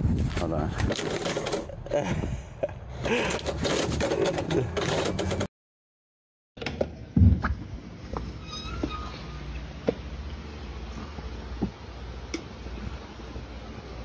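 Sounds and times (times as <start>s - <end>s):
mail slot flap rattling: 0.9s - 1.7s.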